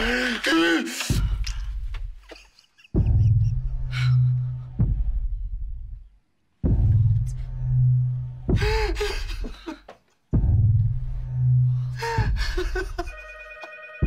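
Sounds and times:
telephone ringing: 0:13.1 - 0:14.0.

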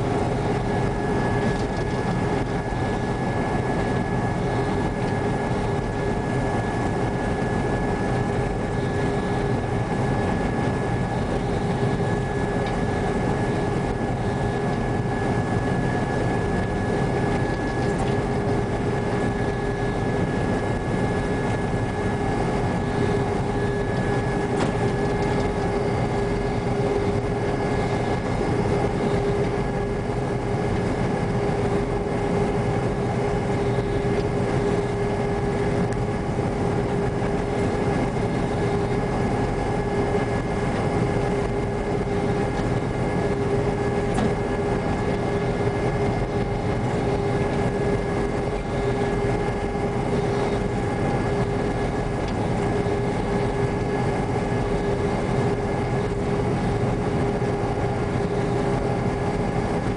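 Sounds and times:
combine engine and threshing drone: 0:00.0 - 0:59.9
constant machinery whine: 0:00.0 - 0:59.9.

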